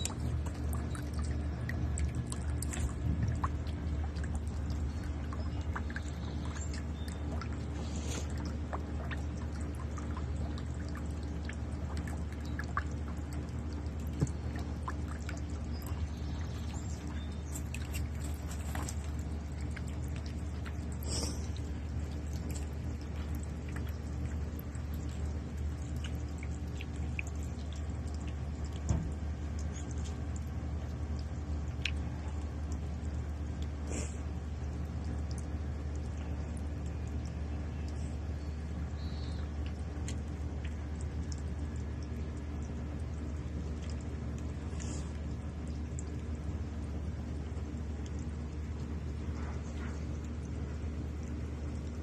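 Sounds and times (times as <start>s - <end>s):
small splashes and taps: 0.0s - 33.8s, 34.5s - 52.0s
steady low hum: 0.0s - 52.0s.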